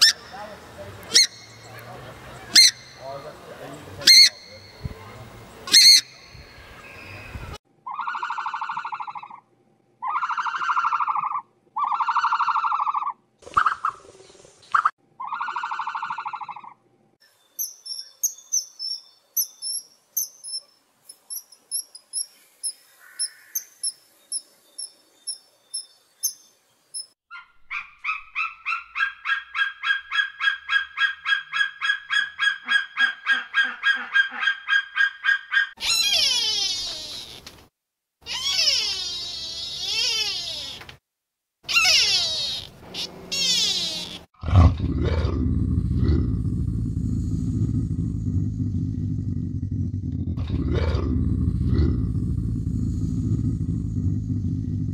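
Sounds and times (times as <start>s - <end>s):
bird calls: 0.0s - 9.4s, 17.5s - 37.5s, 41.7s - 44.3s.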